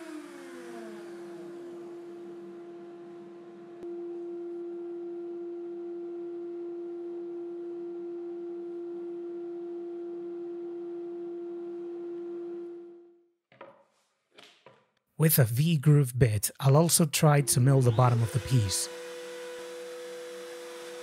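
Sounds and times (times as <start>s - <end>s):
router running with high whine: 0.0s - 10.9s, 17.4s - 21.0s.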